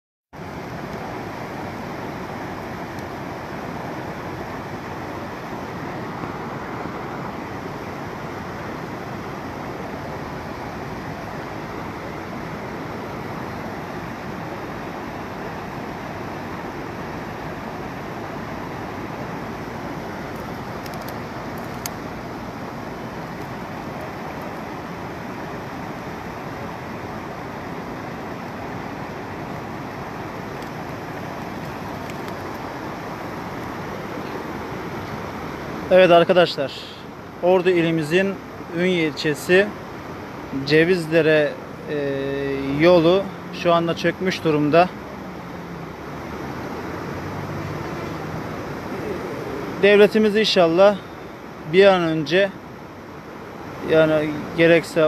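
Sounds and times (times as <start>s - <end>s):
river rushing in flood: 0.4s - 55.0s
faint clicks: 20.3s - 22.0s.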